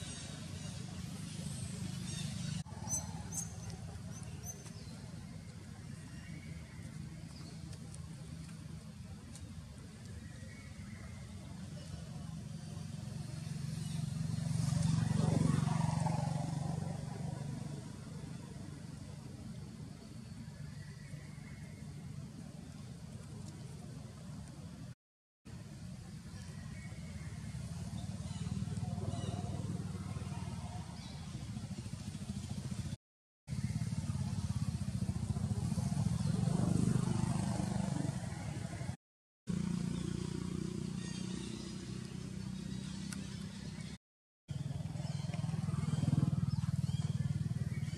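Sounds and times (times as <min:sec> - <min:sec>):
vehicle engine passing by: 0:11.8 - 0:19.3, 0:27.1 - 0:47.9
small engine running: 0:44.5 - 0:47.9.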